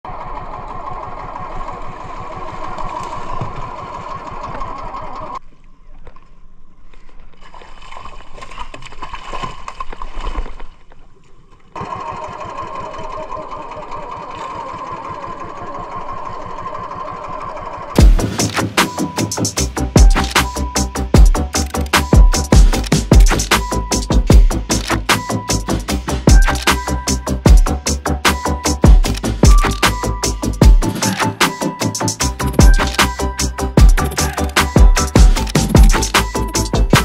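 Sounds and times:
boat engine humming: 0.0 - 5.4, 11.6 - 37.0
fish thrashing and splashing: 7.2 - 11.0.

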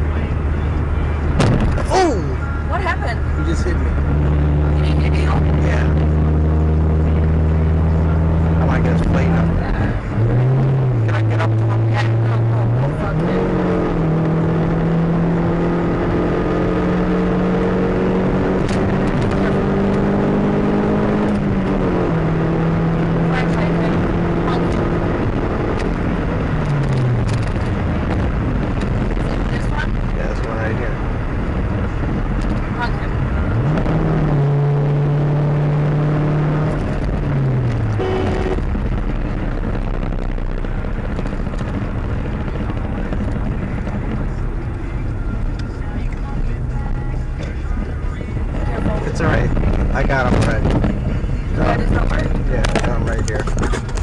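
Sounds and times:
car engine humming: 0.0 - 54.0
road noise: 0.0 - 54.0
brief higher tone: 38.0 - 38.6.

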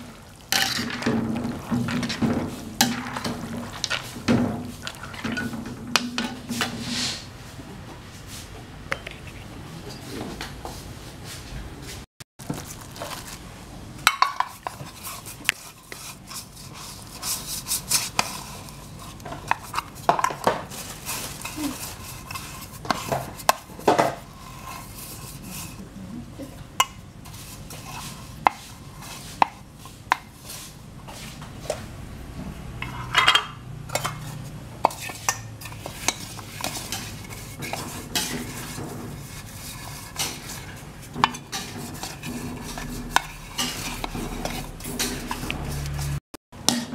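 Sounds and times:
utensils clinking on metal bowl: 0.0 - 6.8, 32.8 - 46.1
stirring and scraping in bowl: 0.0 - 7.4, 14.0 - 31.9, 32.7 - 46.9.

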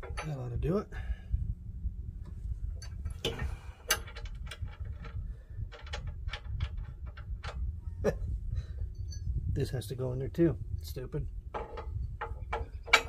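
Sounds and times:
steady low rumble: 0.0 - 13.0
metallic clicks of wrench and bolts: 2.8 - 7.6.

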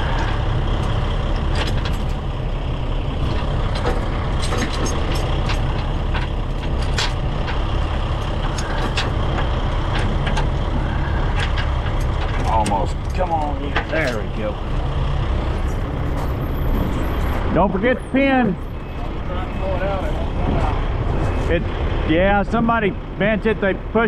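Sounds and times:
truck engine idling: 0.0 - 24.0
steel chain clanking: 3.3 - 14.6.

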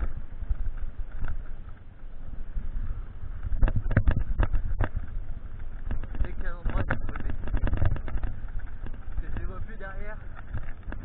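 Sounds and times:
bike rolling rumble: 0.0 - 11.0
wind noise: 0.0 - 11.0
bike knocks and rattles: 3.4 - 11.0.

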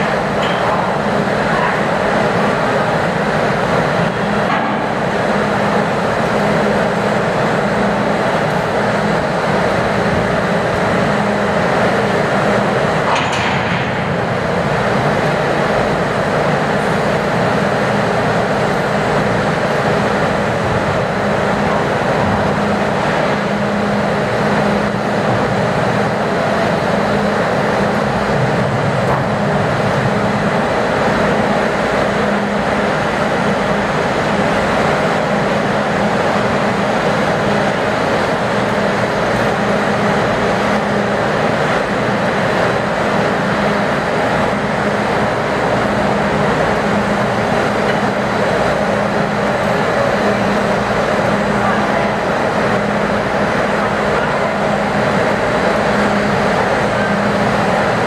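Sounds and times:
machinery drone: 0.0 - 58.0.

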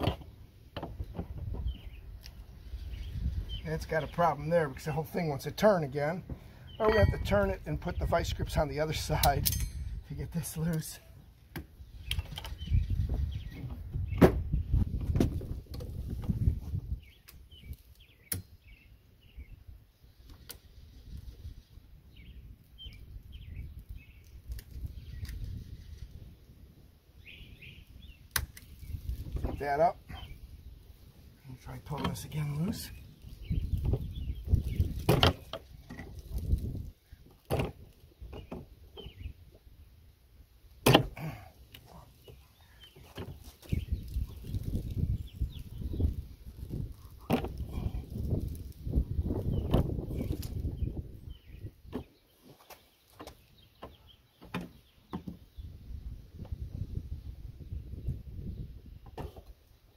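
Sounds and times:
low rumbling handling noise: 0.0 - 4.8, 11.5 - 18.8
small birds chirping: 0.0 - 59.9
hand tools clinking on metal: 9.2 - 10.1
sharp metal clank: 9.4 - 10.0.

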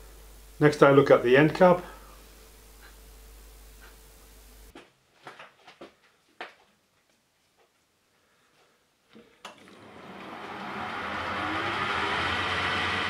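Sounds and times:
lathe motor running: 9.6 - 13.0.

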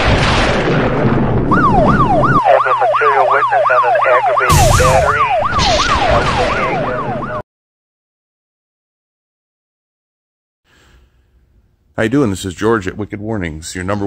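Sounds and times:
electronic siren yelping: 1.5 - 7.4
sharp hit: 4.5 - 6.8.

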